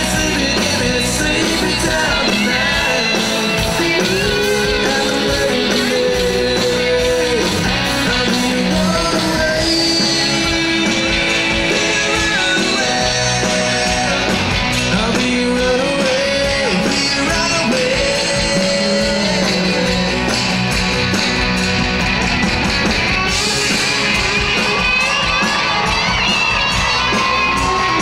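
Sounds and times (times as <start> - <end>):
person singing: 0.0 - 20.5
country rock band playing: 0.0 - 28.0.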